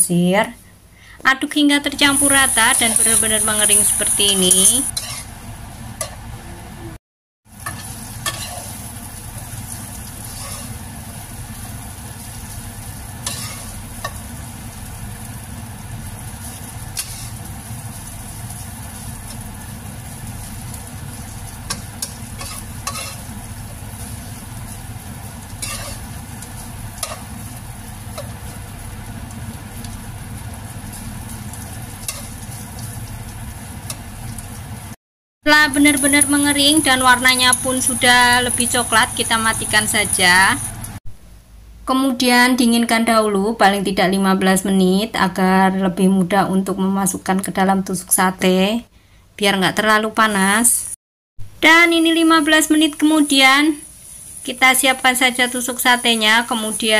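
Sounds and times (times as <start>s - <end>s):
food sizzling in a wok: 1.8s - 6.5s, 7.4s - 41.0s, 50.2s - 56.9s
spatula scraping a pan: 4.9s - 5.3s, 7.6s - 8.8s, 10.1s - 10.8s, 13.2s - 14.2s, 16.9s - 17.5s, 21.7s - 23.3s, 25.5s - 26.1s, 32.0s - 32.9s.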